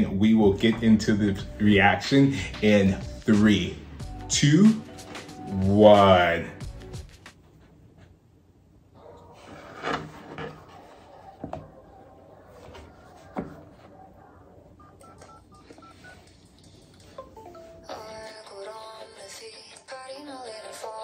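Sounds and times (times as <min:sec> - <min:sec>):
phone keypad beeps: 0:14.8 - 0:16.2.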